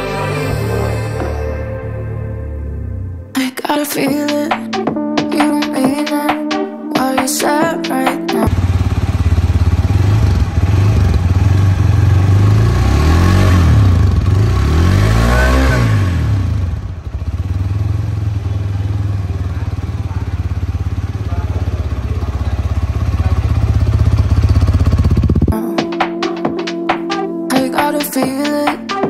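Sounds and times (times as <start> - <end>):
motorcycle engine idling and revving: 8.4 - 25.6.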